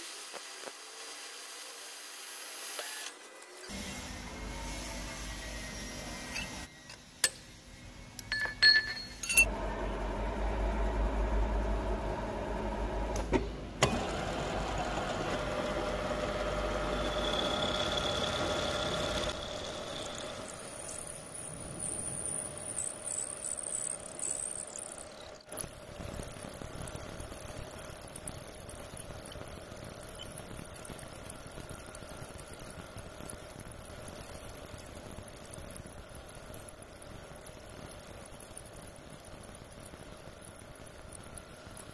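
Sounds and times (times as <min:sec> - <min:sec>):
sharp metal clinks: 0:08.2 - 0:09.5
milling machine cutting metal: 0:15.4 - 0:22.0.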